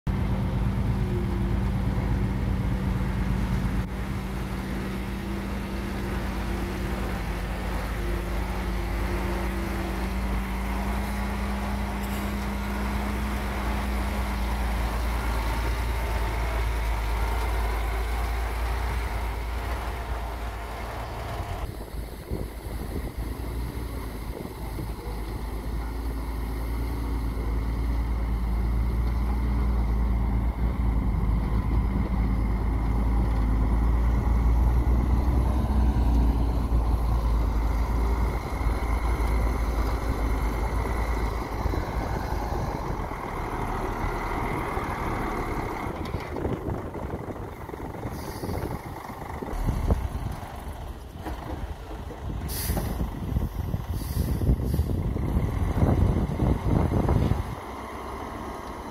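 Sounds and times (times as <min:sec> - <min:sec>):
heavy diesel truck driving: 0:00.0 - 0:58.9
short hiss: 0:52.5 - 0:53.0, 0:53.9 - 0:54.9.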